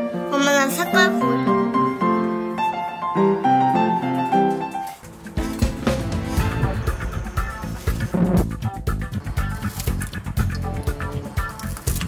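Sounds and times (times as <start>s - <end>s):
plucked guitar and bass music: 5.4s - 12.0s.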